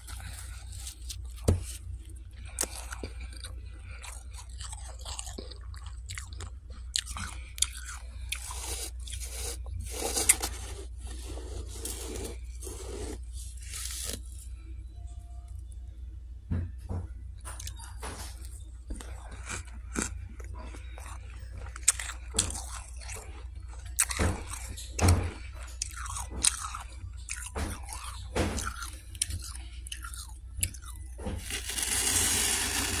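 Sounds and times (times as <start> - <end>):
person crunching frost: 0.0 - 6.3, 7.0 - 14.5, 31.4 - 33.0.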